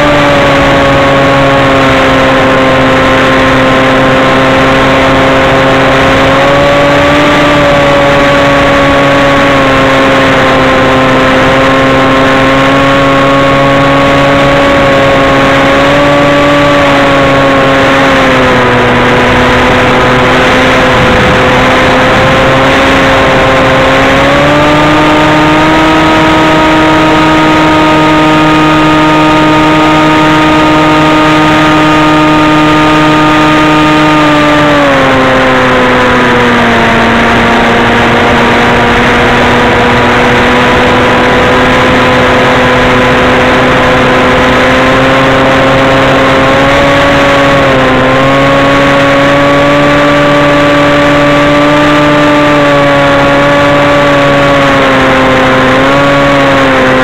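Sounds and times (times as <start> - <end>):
model aircraft motor whine: 0.0 - 57.0
rushing air: 17.3 - 27.5.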